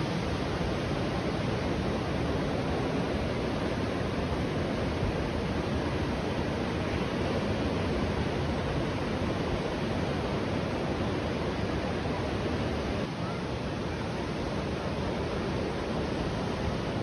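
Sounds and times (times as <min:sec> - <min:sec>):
wind: 0:00.0 - 0:17.0.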